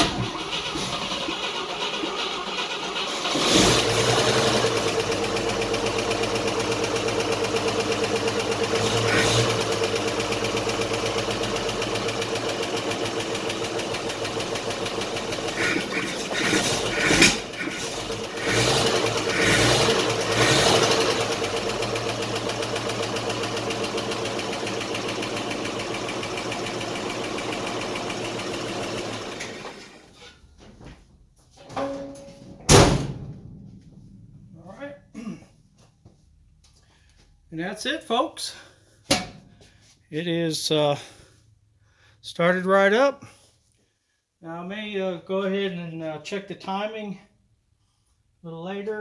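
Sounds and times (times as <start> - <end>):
truck engine idling: 0.0 - 30.2.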